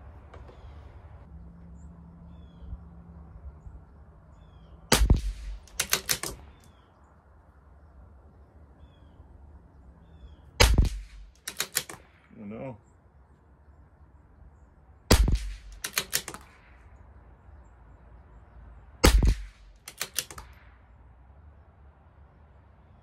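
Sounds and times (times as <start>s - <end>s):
rifle shots: 4.9s - 6.7s, 10.6s - 12.3s, 15.1s - 16.9s, 19.0s - 20.8s
rifle bolt clicking: 5.0s - 6.7s, 10.6s - 12.1s, 15.1s - 16.6s, 19.0s - 20.6s.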